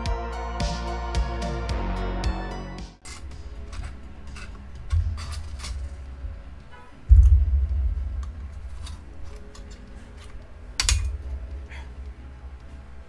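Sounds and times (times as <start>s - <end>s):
metallic clicks and scrapes of tools: 3.0s - 7.4s, 8.2s - 12.2s
heavy low thump: 7.1s - 9.0s.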